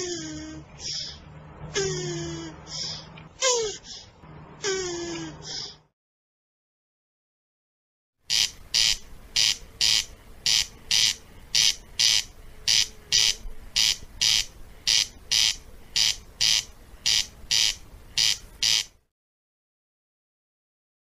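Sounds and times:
corncrake rasping call: 0:08.3 - 0:19.0.

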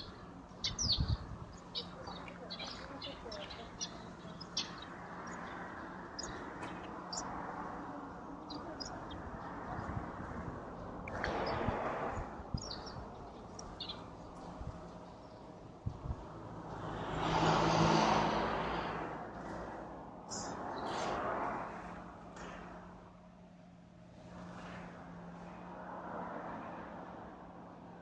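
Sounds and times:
small birds chirping: 0:00.0 - 0:10.4, 0:11.0 - 0:15.6, 0:20.3 - 0:21.1.

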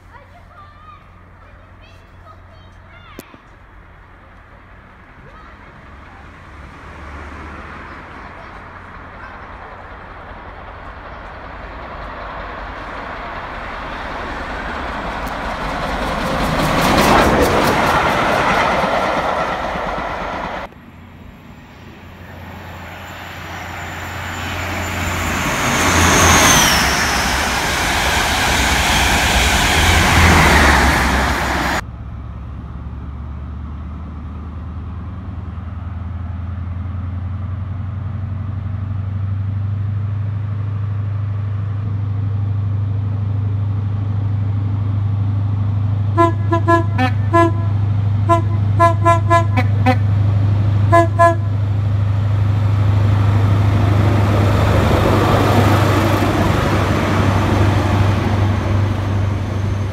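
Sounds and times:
train wheels rushing on rails: 0:04.8 - 0:31.8, 0:43.4 - 0:59.9
rapid clicks of train wheels: 0:08.6 - 0:20.8.

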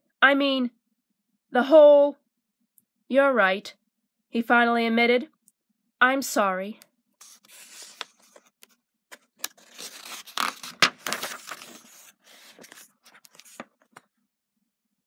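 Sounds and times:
paper rubbing: 0:07.2 - 0:08.5, 0:09.1 - 0:14.0
book pages turning and rustling: 0:07.2 - 0:14.1
paper snapping: 0:09.4 - 0:11.9.

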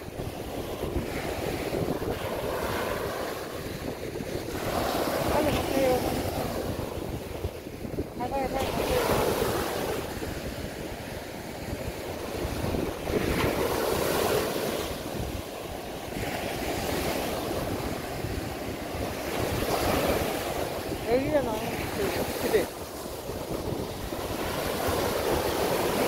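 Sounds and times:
small waves breaking on sand: 0:00.0 - 0:26.0
wind buffeting microphone: 0:00.0 - 0:26.0.

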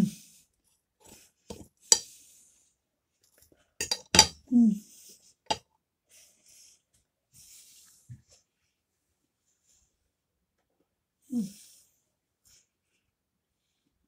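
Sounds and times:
cutlery clinking on a plate: 0:01.5 - 0:02.0, 0:03.8 - 0:04.4.

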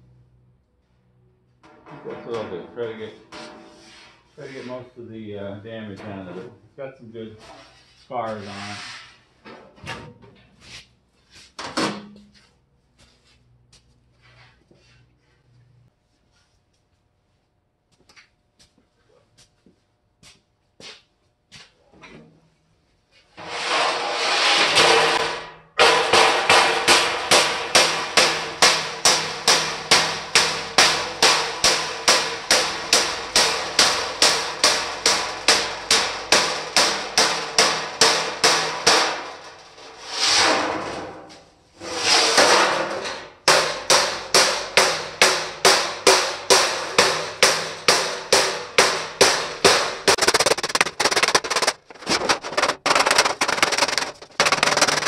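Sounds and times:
hammer blows on sheet metal: 0:23.4 - 0:40.9, 0:42.1 - 0:55.0.

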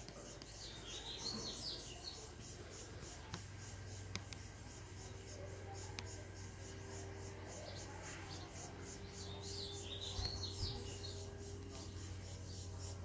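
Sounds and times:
bird chirps: 0:00.2 - 0:02.9, 0:06.9 - 0:13.0.

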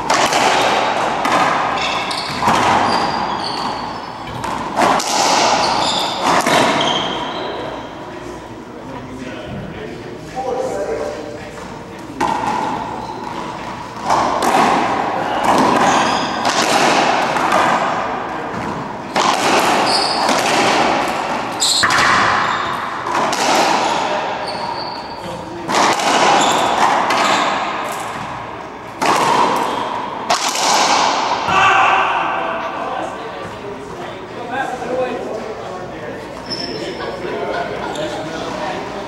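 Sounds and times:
ball cracking off racquets and walls: 0:00.0 - 0:07.2, 0:12.2 - 0:24.1, 0:25.6 - 0:31.6
shoes squeaking on hardwood: 0:01.8 - 0:04.6, 0:05.6 - 0:07.6.

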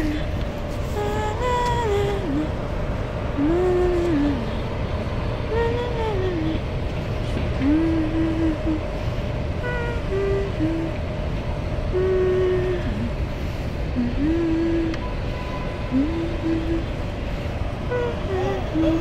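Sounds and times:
person humming held notes: 0:00.0 - 0:02.6, 0:03.3 - 0:04.6, 0:05.5 - 0:06.6, 0:07.3 - 0:08.9, 0:09.6 - 0:11.1, 0:11.9 - 0:13.2, 0:13.9 - 0:15.2, 0:15.9 - 0:17.2, 0:17.9 - 0:19.0
low rumble: 0:00.0 - 0:19.0.

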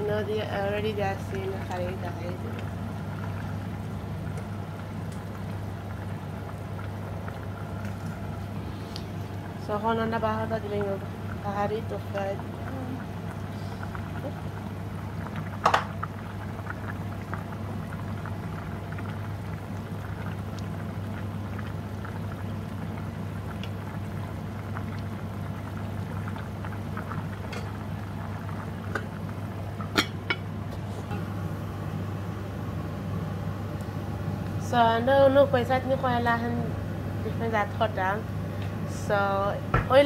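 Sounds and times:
curry simmering with bubbling pops: 0:00.0 - 0:40.0
low hum: 0:27.0 - 0:40.0.

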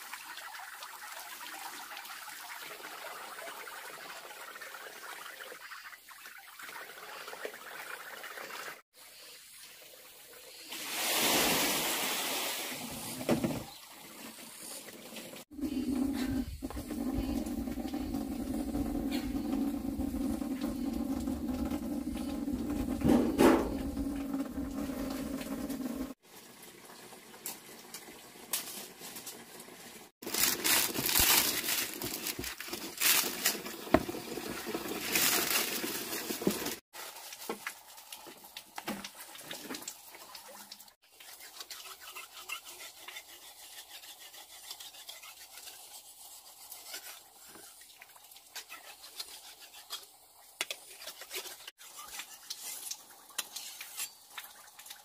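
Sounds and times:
utensil scraping in a pot: 0:14.6 - 0:26.2, 0:41.1 - 0:54.4.

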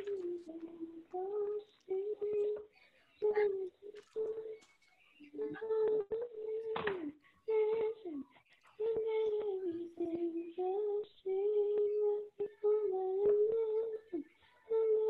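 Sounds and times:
high voice singing: 0:00.0 - 0:04.6.

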